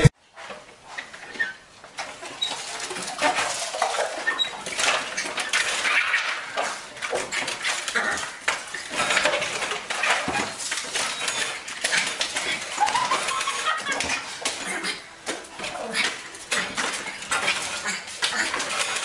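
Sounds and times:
mail slot flap rattling: 3.3s - 15.0s.

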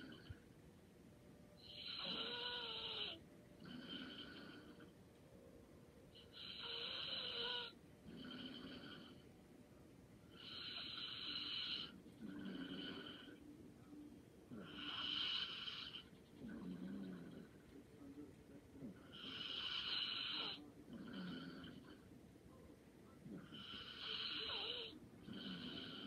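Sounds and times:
person snoring lightly: 1.6s - 4.9s, 6.2s - 9.2s, 10.3s - 13.4s, 23.3s - 26.0s.

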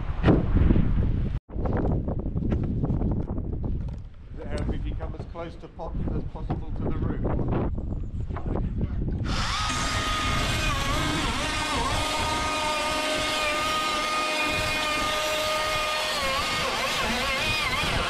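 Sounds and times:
wind buffeting microphone: 0.0s - 18.0s
power drill whining: 9.2s - 18.0s.

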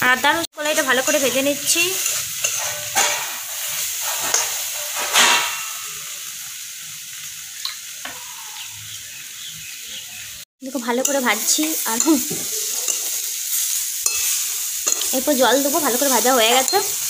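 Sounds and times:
food sizzling in oil: 0.0s - 17.0s
spatula scraping a pan: 0.6s - 6.1s, 11.0s - 17.0s.

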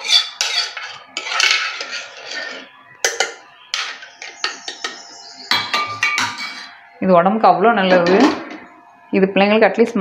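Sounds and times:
metal spoon scraping a pot: 0.0s - 5.1s, 5.8s - 6.7s.

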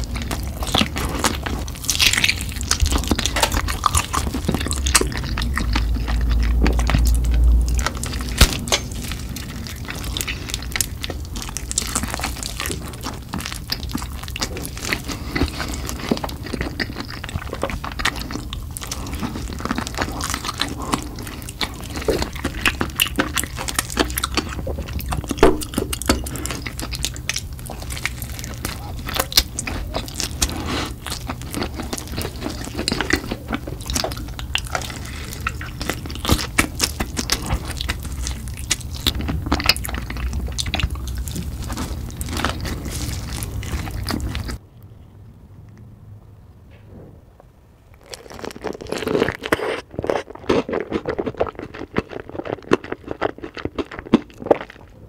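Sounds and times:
low rumble: 0.0s - 14.3s
crunchy chewing: 0.0s - 45.9s, 47.9s - 55.0s.

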